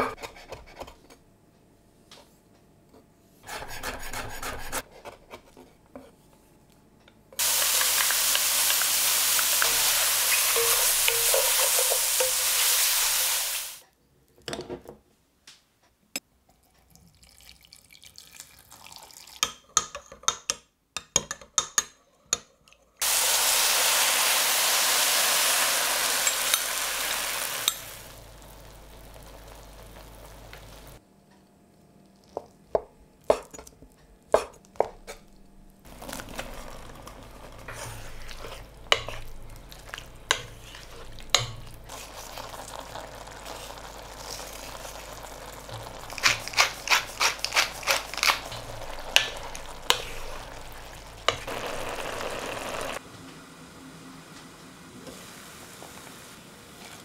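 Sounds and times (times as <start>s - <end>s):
food sizzling in frying pan: 7.4s - 13.8s, 23.0s - 31.0s, 35.9s - 53.0s.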